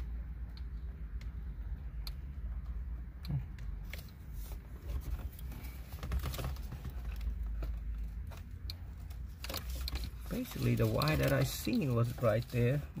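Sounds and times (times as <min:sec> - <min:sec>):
hands rummaging through wires: 0:09.1 - 0:12.9.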